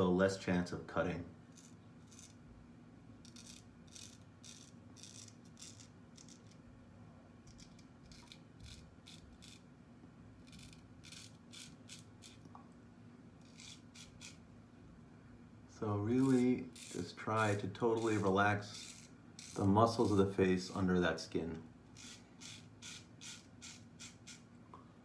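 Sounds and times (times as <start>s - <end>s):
razor scraping stubble: 1.5s - 2.4s, 3.2s - 6.6s, 7.5s - 9.7s, 10.4s - 12.5s, 13.4s - 14.4s, 16.1s - 20.8s, 21.9s - 24.5s.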